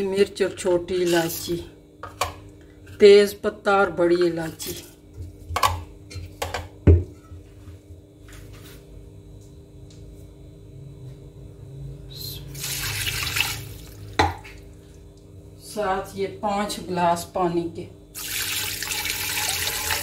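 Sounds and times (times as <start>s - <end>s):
faint steady hum: 0.0s - 20.0s
water pouring: 12.6s - 14.2s, 18.2s - 20.0s.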